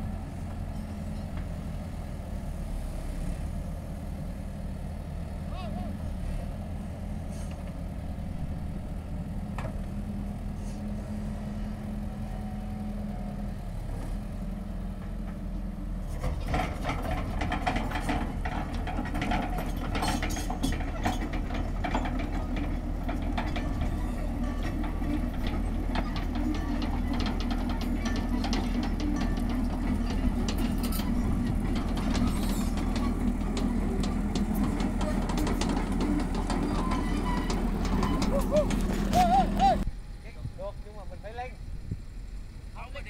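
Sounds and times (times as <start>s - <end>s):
excavator diesel engine running: 0.0s - 43.0s
rapid metallic clattering: 16.3s - 39.8s.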